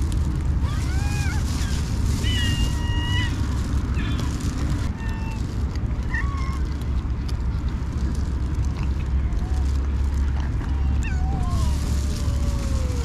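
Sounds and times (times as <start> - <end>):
steady low rumble: 0.0 - 13.0
cats meowing: 0.6 - 6.8, 10.7 - 13.0.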